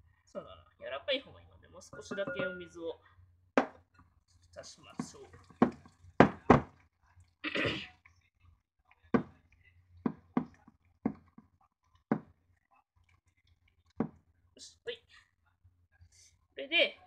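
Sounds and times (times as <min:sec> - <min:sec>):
hands kneading wet meat: 0:04.2 - 0:07.4.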